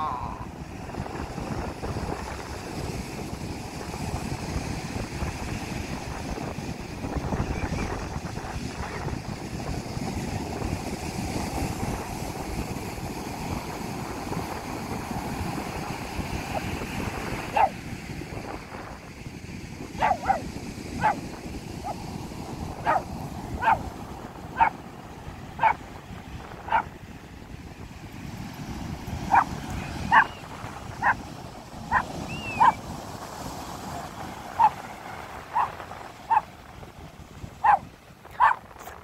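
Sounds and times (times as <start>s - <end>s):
ocean surf rushing: 0.0s - 39.0s
dog barking: 17.5s - 17.8s, 20.0s - 20.4s, 21.0s - 21.2s, 22.8s - 23.9s, 24.6s - 24.8s, 25.6s - 25.8s, 26.7s - 26.9s, 29.3s - 31.2s, 31.9s - 32.8s, 34.6s - 34.8s, 35.5s - 36.5s, 37.6s - 38.6s.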